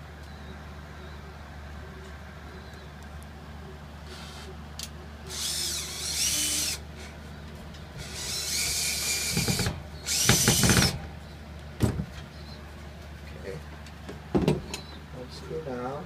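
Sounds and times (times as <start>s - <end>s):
cordless drill motor whine: 5.3s - 6.8s, 8.0s - 11.0s.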